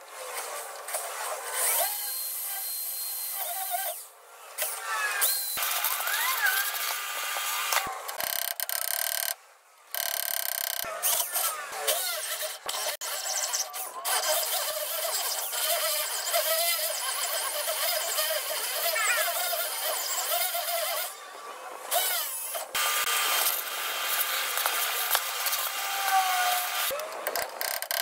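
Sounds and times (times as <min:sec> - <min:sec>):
sped-up drilling into steel: 0:10.0 - 0:21.1.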